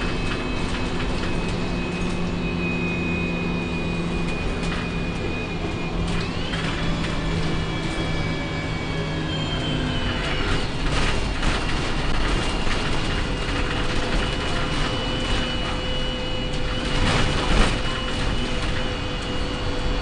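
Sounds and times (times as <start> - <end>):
thin high whistle: 0.0 - 10.7
bus engine and road rumble: 0.0 - 20.0
knocks and rattles: 10.4 - 18.9.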